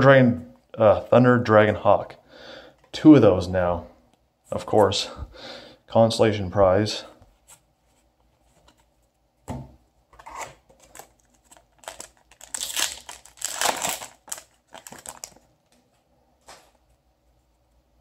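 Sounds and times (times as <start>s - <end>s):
foil pack tearing and crinkling: 10.3s - 15.4s.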